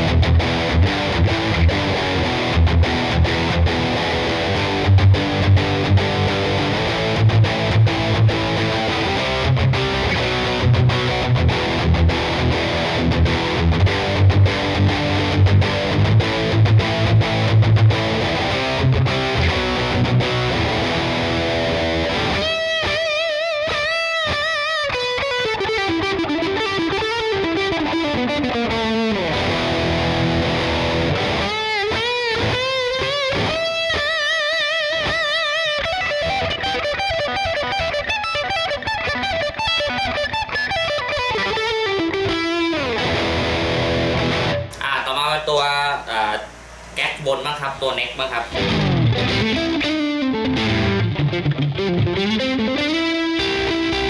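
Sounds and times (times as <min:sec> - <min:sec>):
distorted electric guitar riffs: 0:00.0 - 0:54.0.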